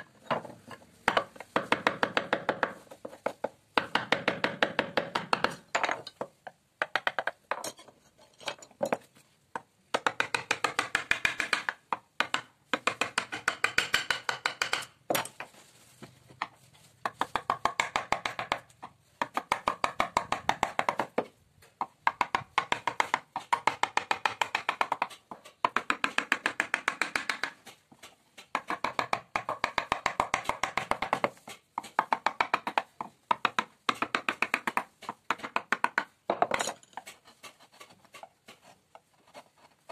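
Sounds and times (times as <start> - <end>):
mallet tapping a chisel into wood: 1.1 - 2.8, 3.8 - 6.2, 9.9 - 15.4, 17.0 - 27.6, 28.5 - 36.6.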